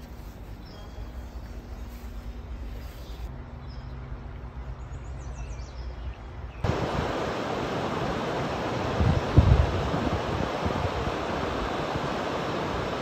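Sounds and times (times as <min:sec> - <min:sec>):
faint bird chirps: 0:00.6 - 0:04.0
river water rushing over rocks: 0:06.7 - 0:13.0.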